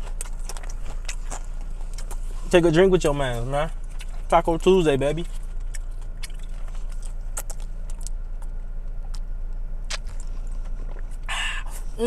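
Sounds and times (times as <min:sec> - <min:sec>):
breathy exhale: 0:11.3 - 0:11.8.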